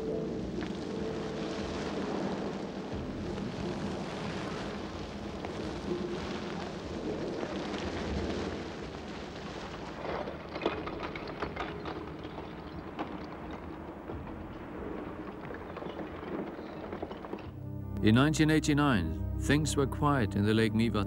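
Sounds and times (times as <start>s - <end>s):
water jets and steam hissing: 0.0s - 17.3s
lava flow crackling: 0.0s - 18.2s.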